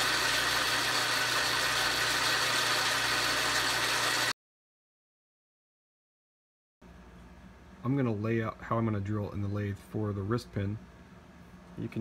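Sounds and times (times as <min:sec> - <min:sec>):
metal lathe running: 0:00.0 - 0:04.3.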